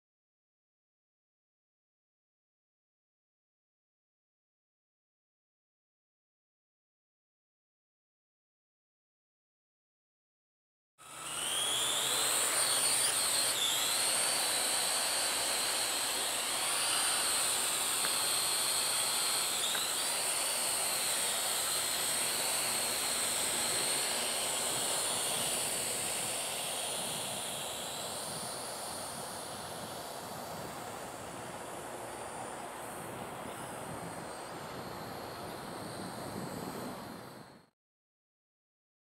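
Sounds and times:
drone propellers whining: 0:11.0 - 0:37.7.

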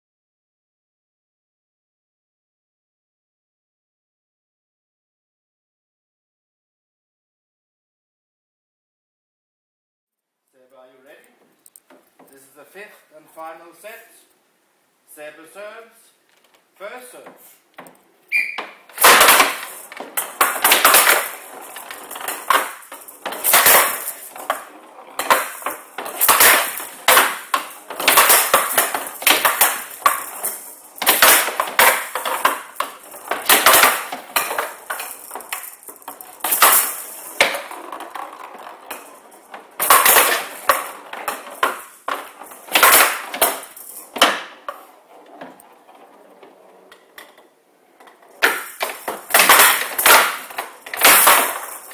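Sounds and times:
rattling ball hit with wooden bats: 0:17.8 - 0:45.6, 0:48.3 - 0:51.9
ball banging off wooden walls: 0:17.8 - 0:51.9.

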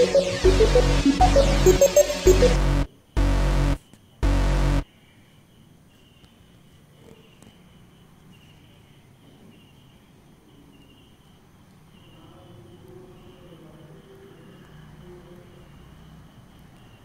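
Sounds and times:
crickets chirping: 0:07.7 - 0:17.0.

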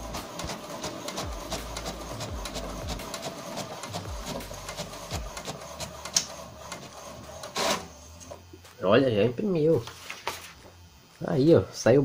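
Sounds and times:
inkjet printer clattering: 0:00.0 - 0:07.9
sharp printer click: 0:00.1 - 0:07.9.

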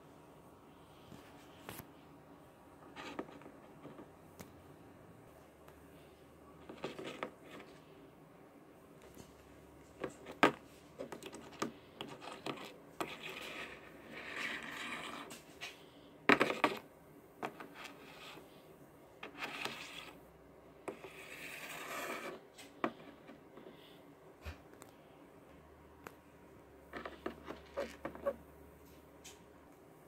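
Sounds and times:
scraping and rubbing on table: 0:02.8 - 0:04.2, 0:06.6 - 0:07.9, 0:10.0 - 0:18.6, 0:19.2 - 0:20.2, 0:20.8 - 0:23.8, 0:26.9 - 0:28.5.

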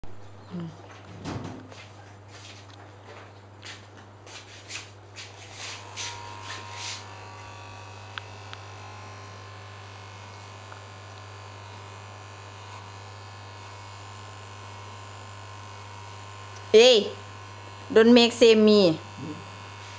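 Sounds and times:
brief rustling strokes: 0:03.7 - 0:07.1
electric hair clippers buzzing: 0:05.2 - 0:19.9.

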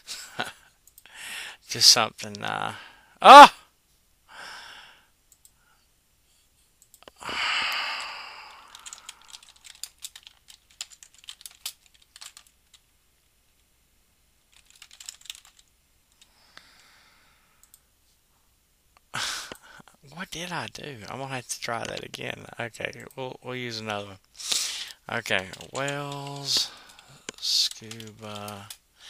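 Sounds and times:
breathy exhale: 0:07.2 - 0:09.3
computer keyboard typing: 0:08.0 - 0:12.8, 0:14.5 - 0:16.3, 0:25.3 - 0:28.8.

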